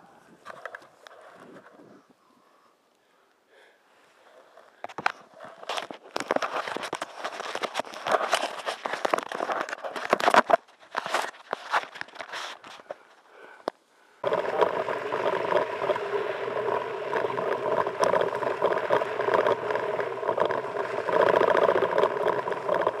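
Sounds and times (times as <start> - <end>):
tyre and wind noise rush: 1.2 - 2.2.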